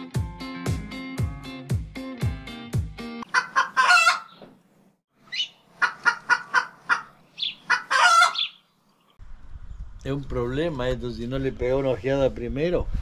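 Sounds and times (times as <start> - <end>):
chickens clucking: 3.2 - 4.5, 5.3 - 8.6.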